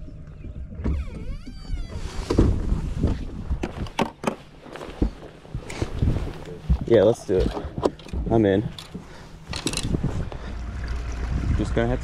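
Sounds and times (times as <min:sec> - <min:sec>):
irregular knocks and clunks: 0:00.1 - 0:11.0.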